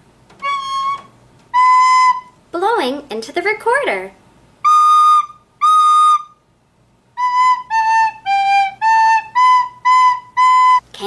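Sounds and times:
recorder notes: 0.3 - 2.4, 4.6 - 6.4, 7.2 - 11.0.

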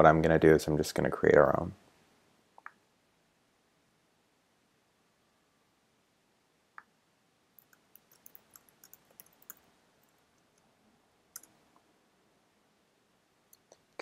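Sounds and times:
computer keyboard typing: 7.6 - 9.6.

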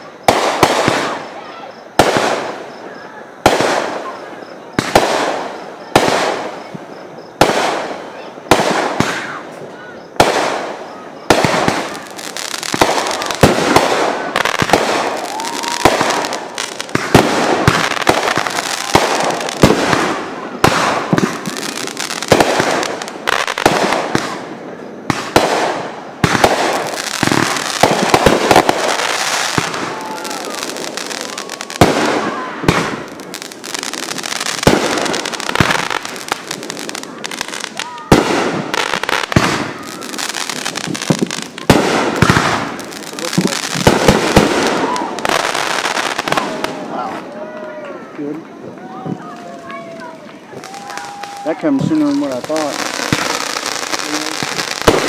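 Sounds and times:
fireworks bangs: 0.0 - 55.0
fireworks crackling: 0.0 - 55.0.

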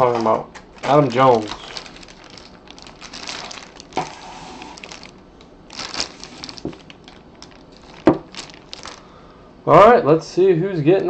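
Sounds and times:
plastic sleeve crinkling: 0.7 - 9.2.

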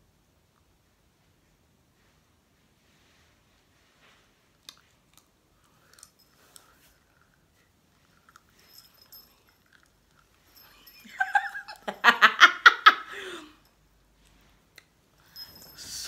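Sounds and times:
woman laughing: 10.7 - 13.6.

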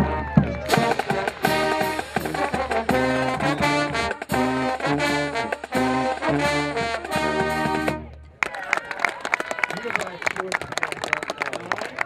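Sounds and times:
brass band playing: 0.0 - 8.3.

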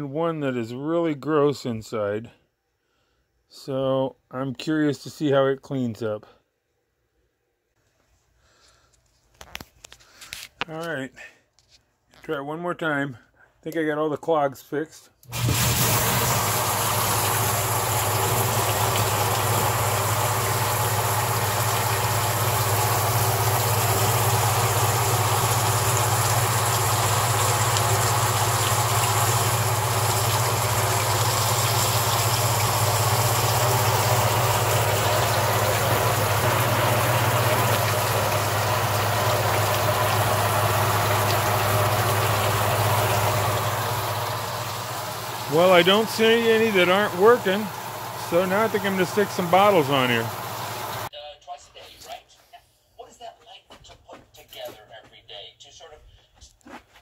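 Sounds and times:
pump motor hum: 15.2 - 51.1
water jets spattering on plastic: 15.3 - 51.1.

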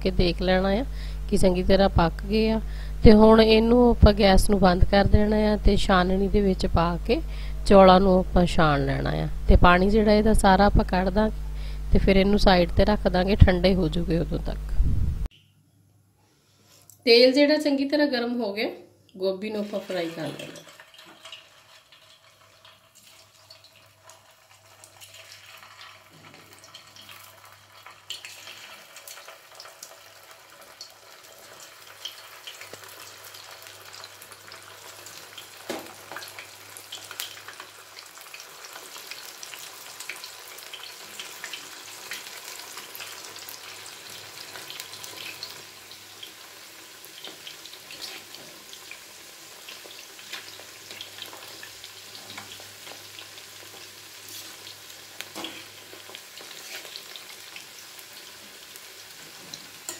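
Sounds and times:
food deep-frying in oil: 19.4 - 59.9
knife turning food in oil: 47.2 - 48.5, 55.2 - 57.4.

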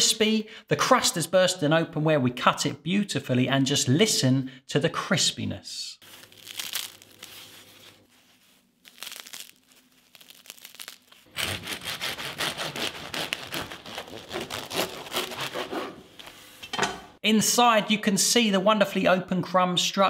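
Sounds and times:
bread crust crackling: 6.0 - 15.6
knife sawing through crusty bread: 11.3 - 16.0.

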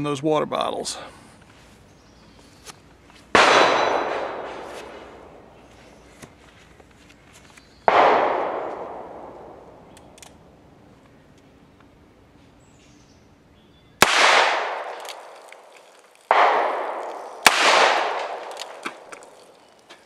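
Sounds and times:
revolver shots echoing: 3.3 - 5.6, 7.9 - 10.2, 14.0 - 15.7, 16.3 - 19.6.

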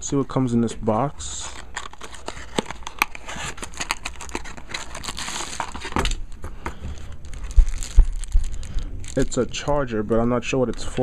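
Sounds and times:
plastic packaging rustling: 1.4 - 9.9
cardboard box opening: 1.5 - 6.2.

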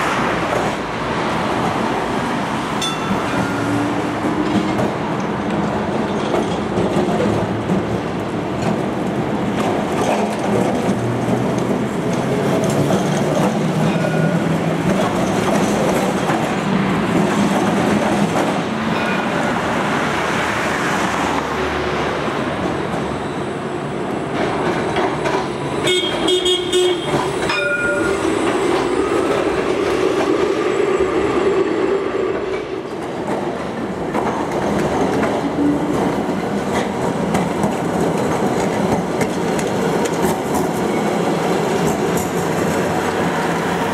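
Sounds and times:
road traffic: 0.0 - 43.9
tram wheels rumbling on rails: 0.0 - 43.9
tram bell ringing rapidly: 2.8 - 3.9, 27.3 - 28.4.

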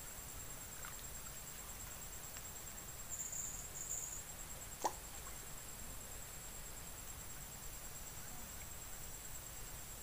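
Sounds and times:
high-pitched insect drone: 0.1 - 4.7.

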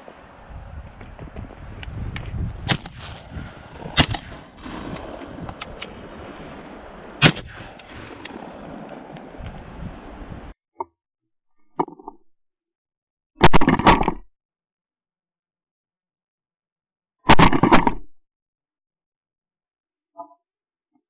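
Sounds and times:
shotgun shots: 2.6 - 9.4.

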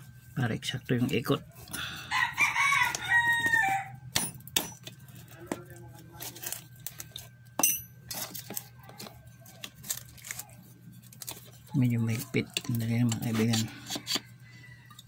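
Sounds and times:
rooster crowing: 1.8 - 4.1, 13.7 - 15.0.

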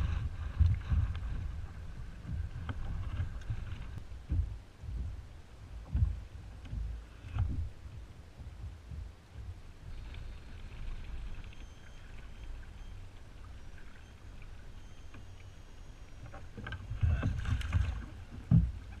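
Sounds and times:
knocks and rattles on kayak: 0.0 - 10.1, 16.2 - 19.0
water lapping against kayak hull: 0.0 - 19.0.

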